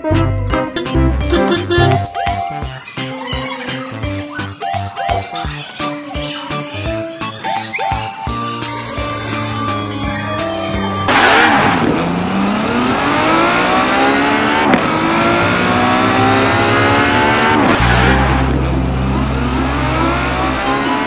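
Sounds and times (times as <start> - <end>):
car engine accelerating: 11.1 - 21.0
steady low drone: 14.7 - 20.8.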